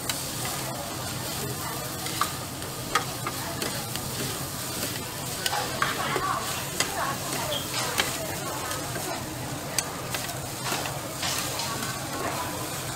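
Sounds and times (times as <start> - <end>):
food sizzling on griddle: 0.0 - 12.9
spatula clinking on hot plate: 2.0 - 9.2.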